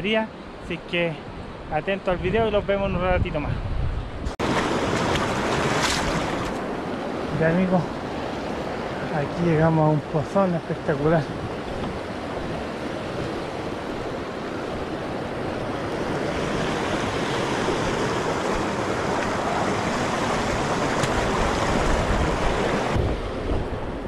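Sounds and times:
river rushing over rocks: 0:16.2 - 0:23.0.

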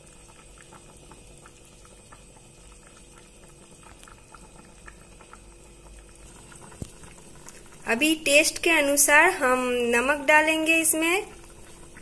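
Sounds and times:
curry bubbling in a pan: 0:00.0 - 0:12.0.

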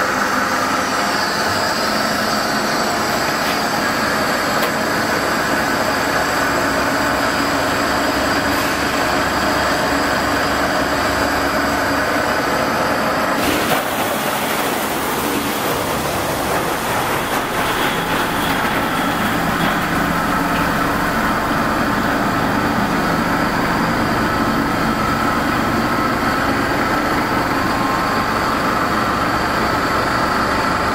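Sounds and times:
ice machine compressor humming: 0:00.0 - 0:30.9.

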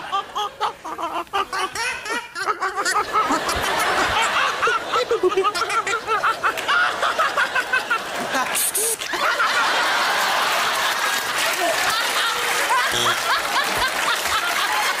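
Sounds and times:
audience laughter: 0:00.0 - 0:15.0
man snickering high-pitched: 0:08.3 - 0:09.1, 0:12.8 - 0:13.4.

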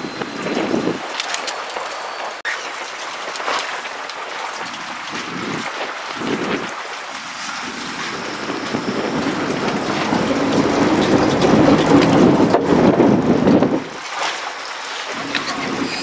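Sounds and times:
choppy sea: 0:00.0 - 0:16.0
wind rushing: 0:05.4 - 0:14.0.

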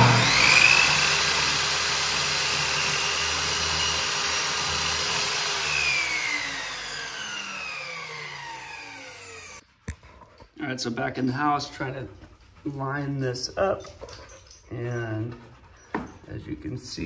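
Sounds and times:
miter saw cutting wood: 0:00.0 - 0:09.6
saw blade winding down whine: 0:00.0 - 0:09.6.

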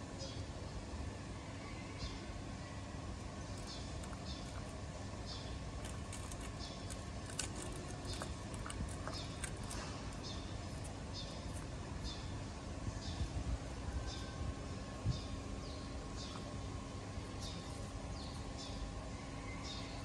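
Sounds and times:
steady low rumble: 0:02.1 - 0:20.0
dog chewing bones: 0:05.8 - 0:11.8.

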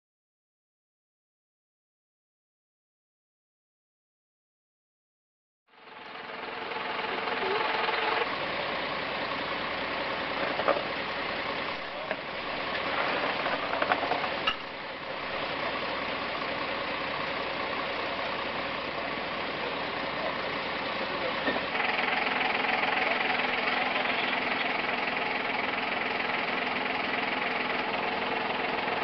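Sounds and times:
vehicle engines running: 0:05.7 - 0:29.0
voices: 0:06.9 - 0:08.2, 0:11.5 - 0:14.6, 0:17.7 - 0:29.0.

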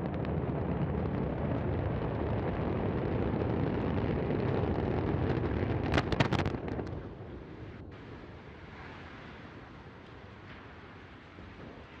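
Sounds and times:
rocket explosion rumble: 0:00.0 - 0:07.9.

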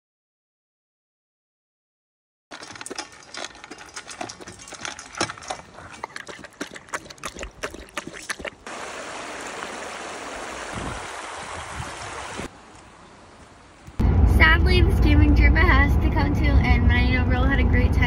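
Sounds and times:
dog lapping water: 0:02.5 - 0:12.5
river rushing over rocks: 0:08.7 - 0:12.7.

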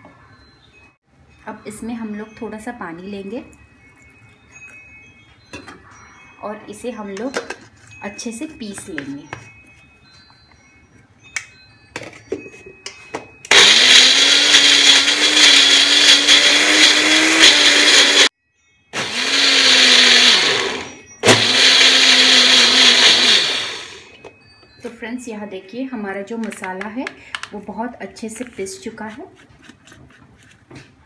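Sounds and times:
mixer grinder motor grinding: 0:13.5 - 0:18.3, 0:19.0 - 0:24.2.

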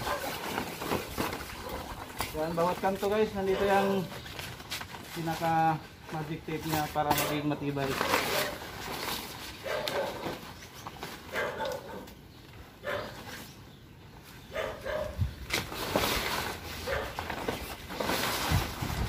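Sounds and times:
dog barking: 0:00.0 - 0:00.4, 0:03.5 - 0:04.0, 0:08.0 - 0:08.6, 0:09.6 - 0:10.3, 0:11.3 - 0:12.1, 0:12.8 - 0:13.2, 0:14.5 - 0:15.2, 0:16.8 - 0:17.2
tent fabric rustling and flapping: 0:00.0 - 0:05.7, 0:15.3 - 0:19.0.

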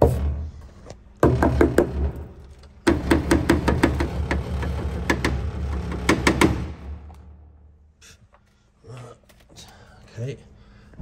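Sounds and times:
sharp knocks and clicks: 0:01.2 - 0:07.3.

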